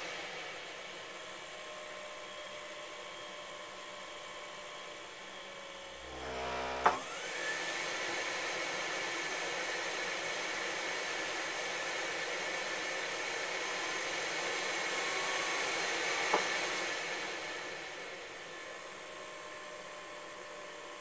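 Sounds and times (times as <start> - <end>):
water heater buzz: 5.9 - 7.7
rising whine: 6.0 - 7.3.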